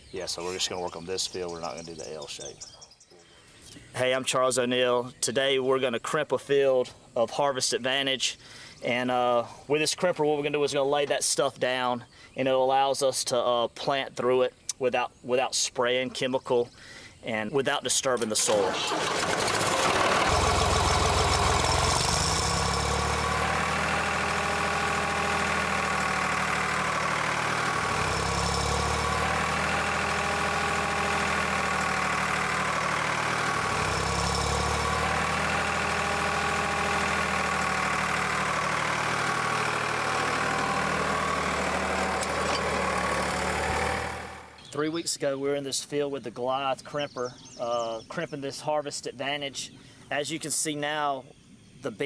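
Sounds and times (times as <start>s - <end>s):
tractor engine starting: 18.0s - 44.7s
tractor engine running: 18.2s - 44.7s.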